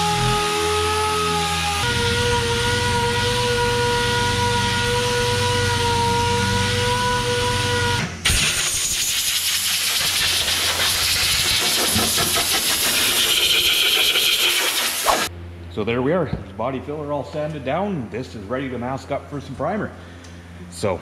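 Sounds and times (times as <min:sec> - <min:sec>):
orbital sander whine: 0:00.0 - 0:08.0, 0:09.8 - 0:15.3
compressed air hissing: 0:08.3 - 0:15.3.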